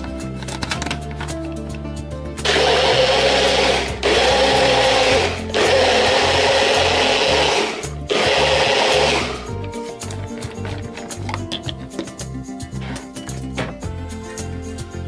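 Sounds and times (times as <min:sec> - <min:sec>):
blender motor whirring: 0:02.4 - 0:09.6.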